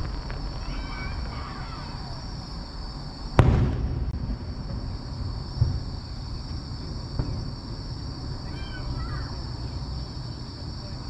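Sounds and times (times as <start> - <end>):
low outdoor rumble: 0.0 - 11.0
faint firework thump: 3.4 - 5.0, 5.6 - 7.5.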